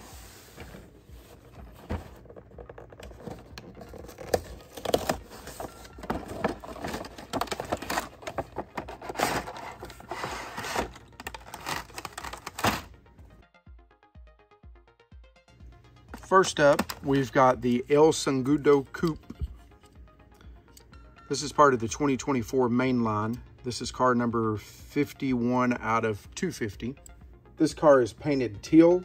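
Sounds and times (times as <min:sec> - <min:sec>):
cardboard and plastic packaging scraping: 0:00.0 - 0:12.9.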